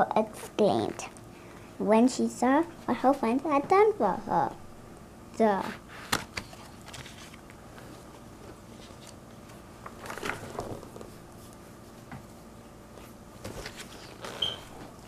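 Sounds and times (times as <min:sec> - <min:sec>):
paper pages rustling: 0:06.1 - 0:11.2, 0:13.0 - 0:14.5.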